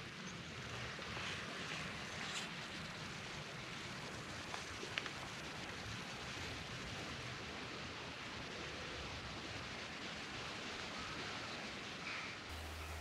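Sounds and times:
soft rushing hiss outdoors: 0.0s - 13.0s.

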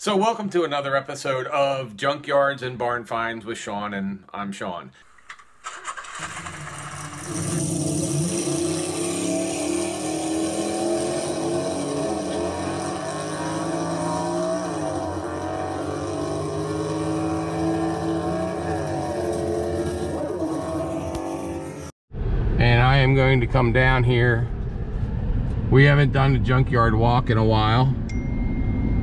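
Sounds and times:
car engine running: 5.2s - 21.9s.

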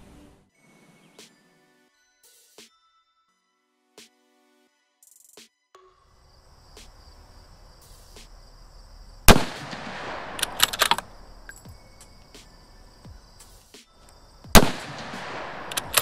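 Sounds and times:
high insect buzz: 6.0s - 9.5s, 10.3s - 14.7s
rifle shot with echo: 9.3s - 12.1s, 14.5s - 16.0s
sharp metallic clicks: 9.3s - 12.5s, 14.0s - 16.0s.

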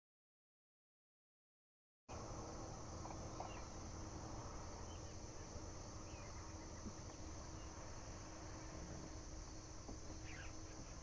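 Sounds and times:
high-pitched insect chorus: 2.1s - 11.0s
faint bird chirps: 3.3s - 3.8s, 4.8s - 7.9s, 10.1s - 11.0s.

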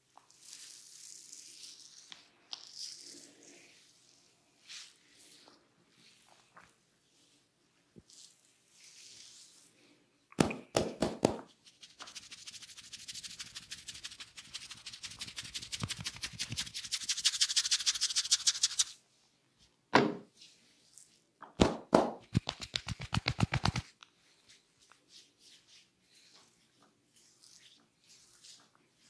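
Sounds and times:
hands slapping head: 10.3s - 11.5s, 21.4s - 23.9s
fast rhythmic rubbing of hair: 11.5s - 19.0s, 22.3s - 23.9s, 27.2s - 29.0s.

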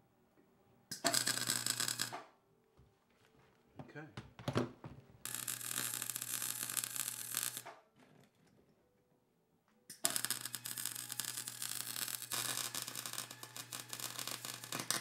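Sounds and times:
welder arc crackling: 0.9s - 2.2s, 5.3s - 7.7s, 9.9s - 15.0s.

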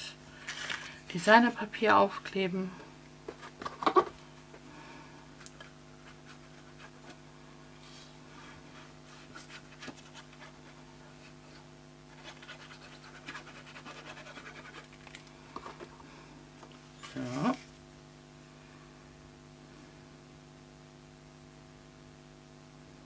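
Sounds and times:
faint electrical hum: 0.0s - 23.0s
glue bottle scratching on paper: 12.1s - 15.0s.

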